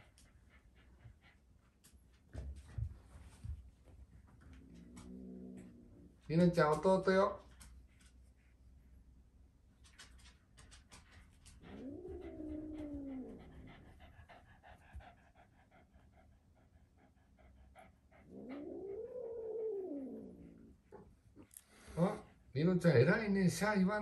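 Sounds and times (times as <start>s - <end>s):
kitten growling: 11.6s - 14.0s, 18.2s - 21.0s.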